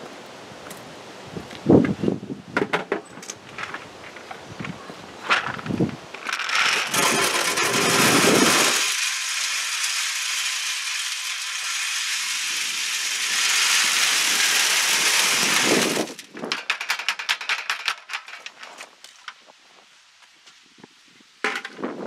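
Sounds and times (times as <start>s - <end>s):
pellets pouring into metal hopper: 6.2s - 17.2s.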